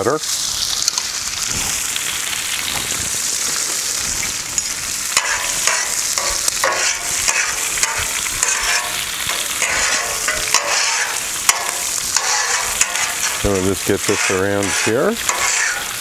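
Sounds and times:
butter and oil sizzling: 0:00.0 - 0:16.0
metal spatula scraping steel: 0:05.2 - 0:16.0.

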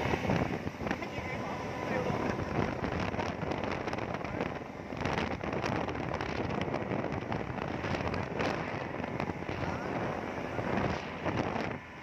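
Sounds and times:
speedboat motor rushing: 0:00.0 - 0:12.0
wind on microphone: 0:00.0 - 0:12.0.

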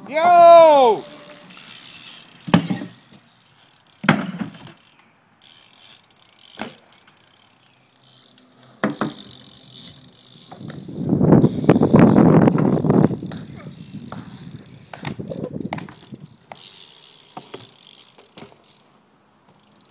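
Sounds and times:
bike landing knocks: 0:02.4 - 0:03.3, 0:04.0 - 0:04.8, 0:06.5 - 0:07.2, 0:08.8 - 0:09.4, 0:12.4 - 0:16.7, 0:17.3 - 0:18.8.

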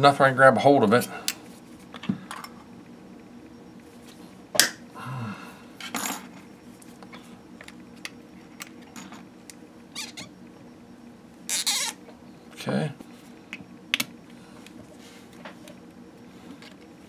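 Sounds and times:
squeaky scrapes of pliers: 0:11.5 - 0:12.0.

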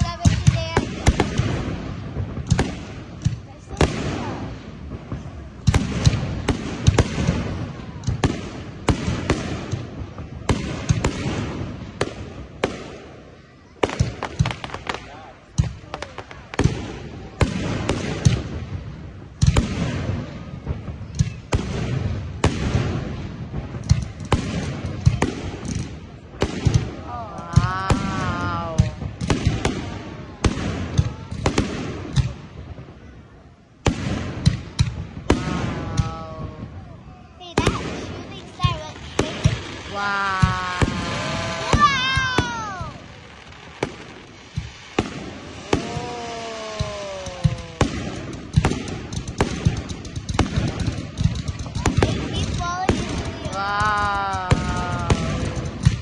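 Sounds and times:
fireworks bursting with sharp bangs: 0:00.0 - 0:56.0
crackling hiss: 0:34.0 - 0:56.0.

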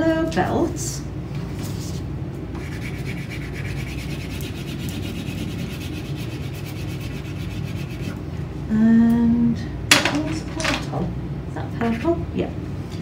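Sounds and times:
crayon scrubbing on paper: 0:02.6 - 0:08.2.

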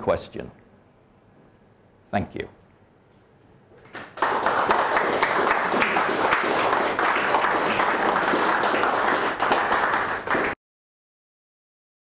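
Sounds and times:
audience applauding: 0:03.8 - 0:10.6.

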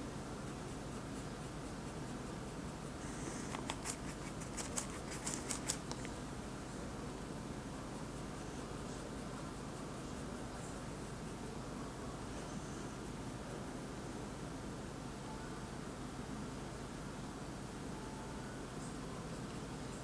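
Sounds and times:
low background hum: 0:00.0 - 0:20.0
paintbrush clicks and scrapes: 0:00.4 - 0:06.2.

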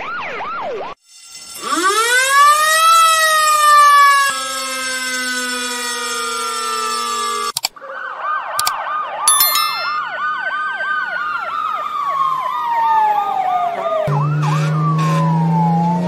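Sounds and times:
fire truck siren yelp and wail: 0:00.0 - 0:01.0, 0:01.6 - 0:09.2, 0:10.2 - 0:16.0
siren with steady tones: 0:00.0 - 0:09.2, 0:10.0 - 0:16.0
siren gliding down and up: 0:13.1 - 0:16.0.

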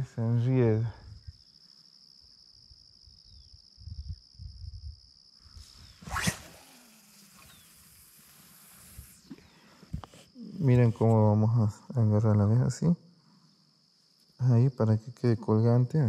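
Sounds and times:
high insect drone: 0:00.0 - 0:16.0
fishing line hissing off reel: 0:05.4 - 0:10.4
fishing rod swish: 0:05.9 - 0:07.6.

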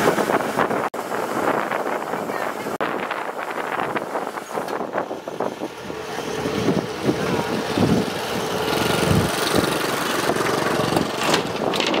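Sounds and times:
wind on microphone: 0:00.0 - 0:12.0
combine harvester engine running: 0:03.0 - 0:12.0.

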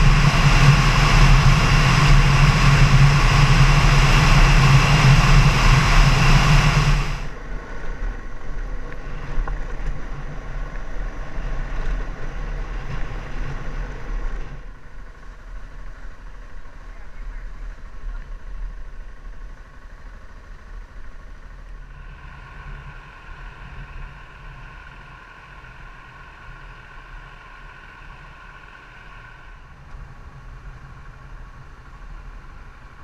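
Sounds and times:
wind noise on microphone: 0:00.0 - 0:07.4
motorcycle engine running: 0:00.0 - 0:33.0
road noise: 0:00.0 - 0:33.0.

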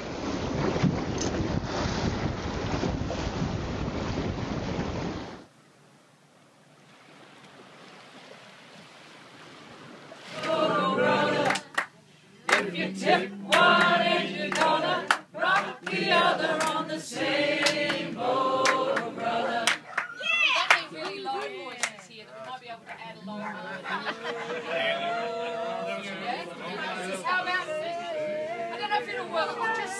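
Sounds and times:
group of voices singing: 0:10.3 - 0:19.9, 0:23.4 - 0:29.9.

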